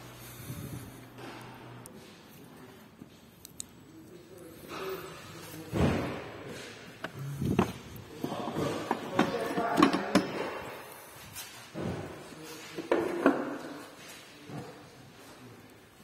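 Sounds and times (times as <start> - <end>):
knocks and clatter of handled tools: 5.7 - 10.6.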